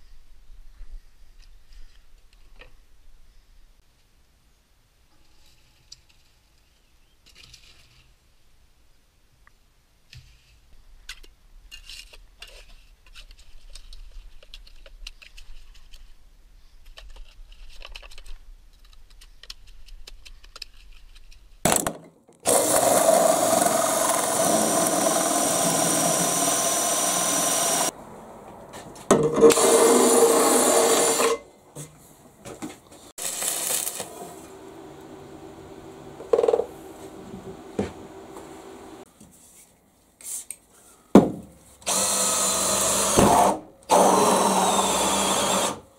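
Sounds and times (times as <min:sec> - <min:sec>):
faint scrapes and knocks: 0:05.1 - 0:08.2, 0:10.1 - 0:18.4
power drill cutting metal: 0:22.5 - 0:27.9, 0:29.4 - 0:31.4, 0:33.2 - 0:35.9, 0:41.9 - 0:45.8.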